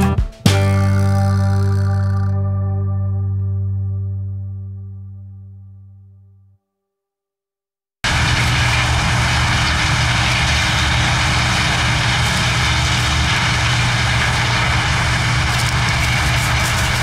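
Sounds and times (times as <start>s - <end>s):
combine harvester engine drone: 8.1s - 17.0s
threshing machinery whirring: 8.1s - 17.0s.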